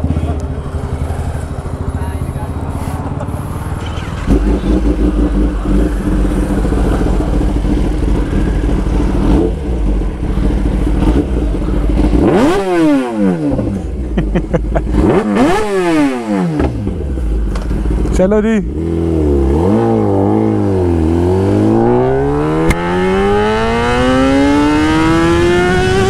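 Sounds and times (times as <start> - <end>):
motorcycle engine idling and revving: 0.0 - 26.0.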